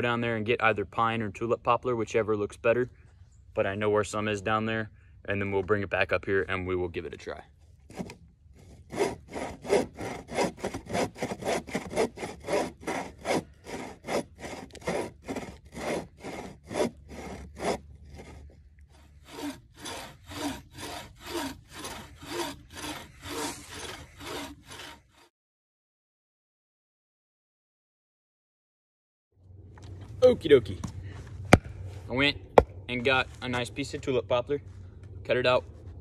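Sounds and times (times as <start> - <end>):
hand saw cutting through log: 7.8 - 25.3.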